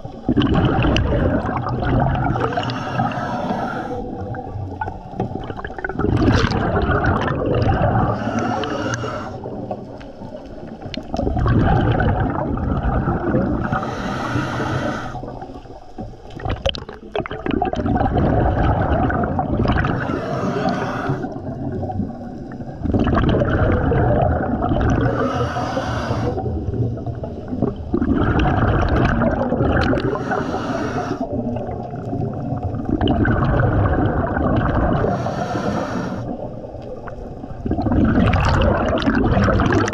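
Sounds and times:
gurgling exhaled bubbles: 0.0s - 39.9s
regulator inhale hiss: 2.2s - 4.3s, 8.1s - 10.7s, 13.6s - 15.6s, 19.9s - 21.4s, 25.0s - 26.7s, 30.0s - 31.4s, 35.0s - 36.6s.

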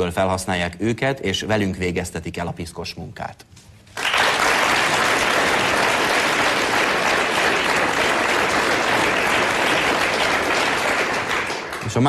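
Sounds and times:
studio audience applauding: 3.9s - 12.0s.

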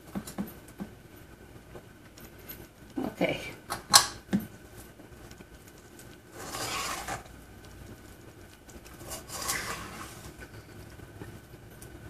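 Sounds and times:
wet scraping in a metal bowl: 6.3s - 7.3s, 9.0s - 10.4s.

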